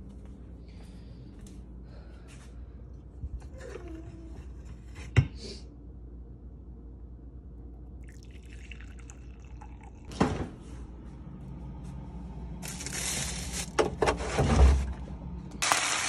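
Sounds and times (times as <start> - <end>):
coffee pouring into mug: 8.0 - 10.1.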